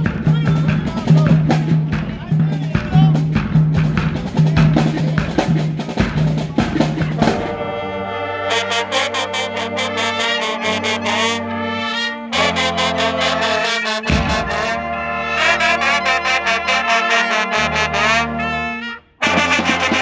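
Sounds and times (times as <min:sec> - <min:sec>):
marching band drums: 0:00.0 - 0:07.9, 0:12.4 - 0:20.0
brass section held chords: 0:06.6 - 0:20.0
low sousaphone note: 0:14.0 - 0:16.7.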